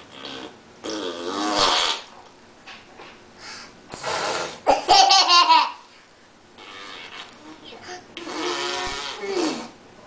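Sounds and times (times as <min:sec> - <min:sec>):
toddler wavering vocal sound: 0:07.9 - 0:09.7.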